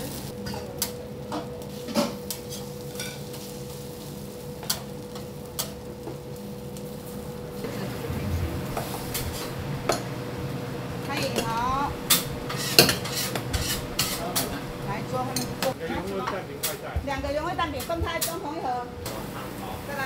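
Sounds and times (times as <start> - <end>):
food sizzling: 0.0 - 20.0
steady hum: 4.3 - 20.0
metal spatula scraping griddle: 12.1 - 14.6.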